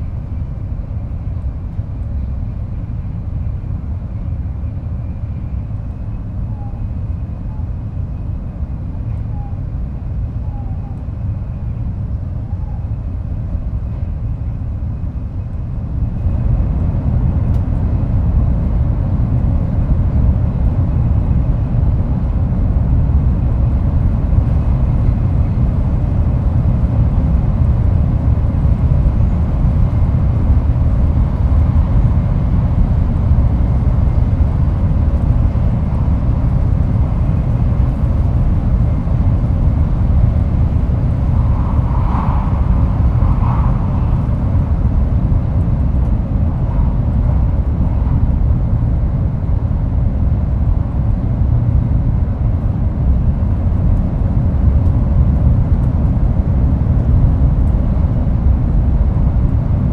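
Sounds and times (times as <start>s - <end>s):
train wheels rumbling: 13.4s - 51.9s.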